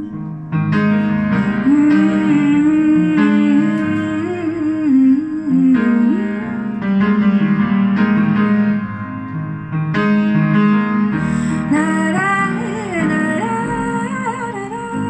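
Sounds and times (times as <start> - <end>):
piano chords: 0.0 - 15.0
woman singing: 1.5 - 6.8, 11.5 - 15.0.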